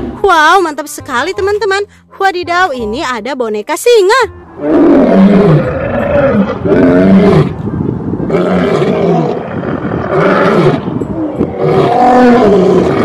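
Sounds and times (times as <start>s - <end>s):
lions roaring: 4.6s - 7.6s, 8.2s - 13.0s.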